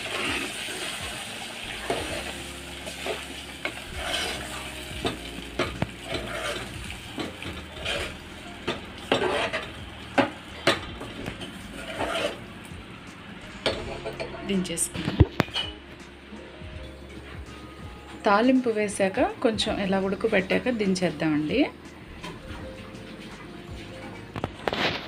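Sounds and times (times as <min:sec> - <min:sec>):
oil sizzling in a pot: 0:00.0 - 0:14.6
ladle knocking and scraping pot: 0:03.0 - 0:12.4, 0:13.6 - 0:15.8.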